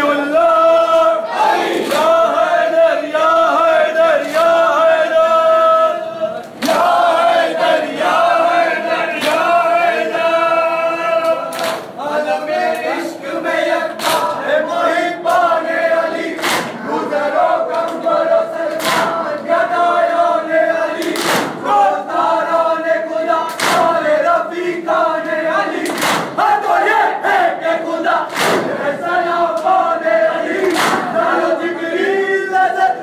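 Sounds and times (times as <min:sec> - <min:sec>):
crowd chanting in unison: 0:00.0 - 0:33.0
hands slapping chests: 0:11.2 - 0:11.9, 0:14.0 - 0:14.3, 0:16.4 - 0:16.8, 0:18.7 - 0:19.2, 0:21.0 - 0:21.6, 0:23.5 - 0:23.9, 0:25.8 - 0:26.4, 0:28.3 - 0:28.7, 0:30.6 - 0:31.1.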